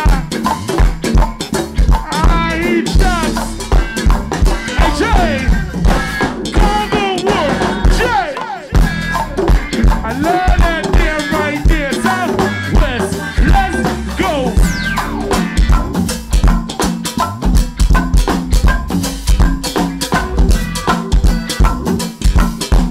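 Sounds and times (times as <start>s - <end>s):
drum kit and bass thumps: 0.0s - 22.9s
live band playing: 0.0s - 22.9s
sliding melody line: 2.1s - 3.8s, 10.0s - 15.6s.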